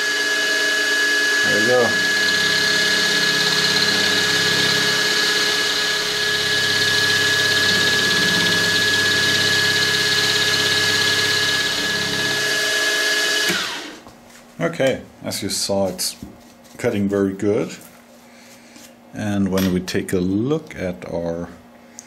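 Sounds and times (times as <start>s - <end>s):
milling spindle whine: 0.0s - 14.0s.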